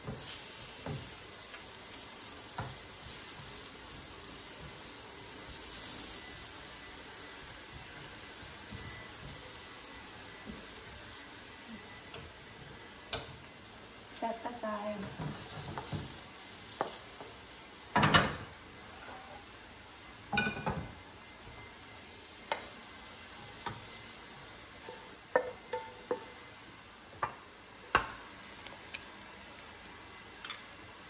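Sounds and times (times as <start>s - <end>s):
carrots sizzling in a frying pan: 0.0s - 27.0s
wooden spatula knocking against pan: 16.8s - 17.4s, 25.3s - 26.3s
dishes clinking: 20.3s - 20.9s.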